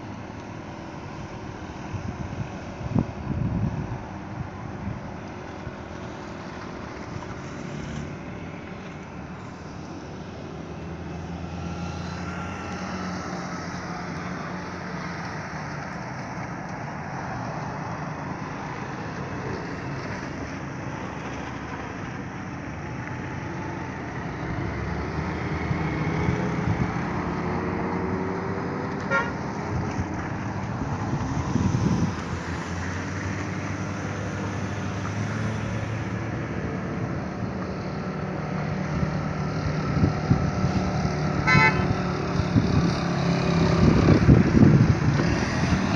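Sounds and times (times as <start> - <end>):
passing cars and motorcycles: 0.0 - 45.9
truck engine labouring uphill: 0.0 - 45.9
horn toots: 29.0 - 29.4, 41.4 - 42.0.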